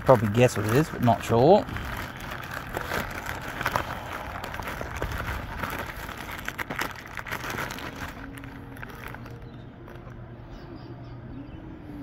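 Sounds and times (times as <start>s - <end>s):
plastic satchel tearing and crinkling: 0.0s - 10.1s.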